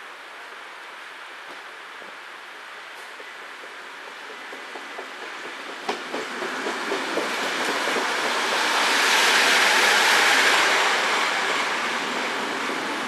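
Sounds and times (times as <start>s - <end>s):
train rushing past: 2.6s - 13.0s
wheels clacking over rail joints: 2.8s - 9.8s.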